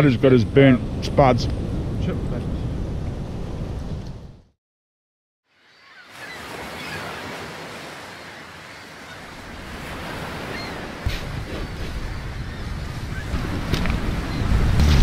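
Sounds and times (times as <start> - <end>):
wind rumble on microphone: 0.0 - 4.5, 9.6 - 15.0
ocean surf on a beach: 5.7 - 15.0.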